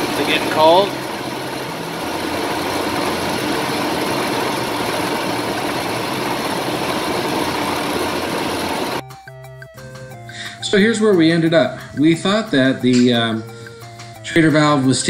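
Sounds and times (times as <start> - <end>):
pickup engine idling: 0.0 - 9.0.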